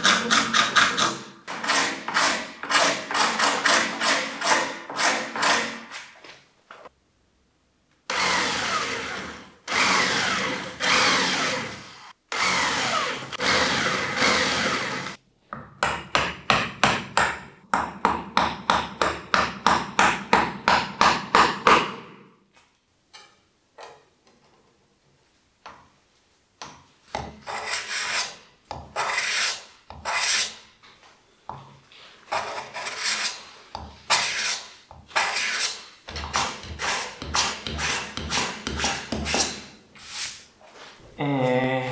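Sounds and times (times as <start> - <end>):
file rasping on wood: 0.0 - 5.8, 27.4 - 28.4, 29.0 - 30.6, 32.3 - 33.4, 34.1 - 40.4.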